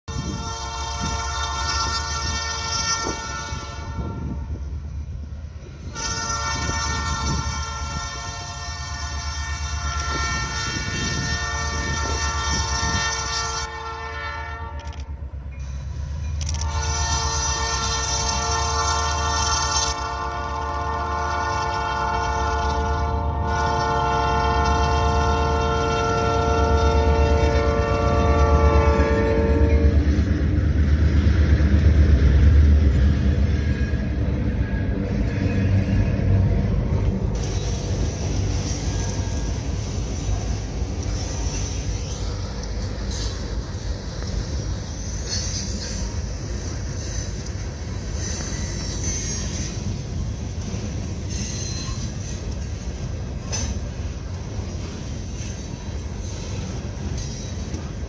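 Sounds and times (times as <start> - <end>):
locomotive air horn blasts: 0.1 - 4.6, 5.8 - 15.1, 16.4 - 30.1.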